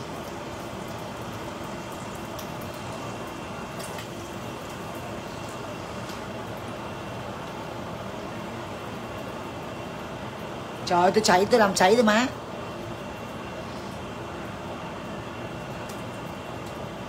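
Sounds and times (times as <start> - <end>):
oil popping and crackling: 0.0 - 9.6, 15.5 - 17.0
fish sizzling in hot oil: 0.0 - 11.0.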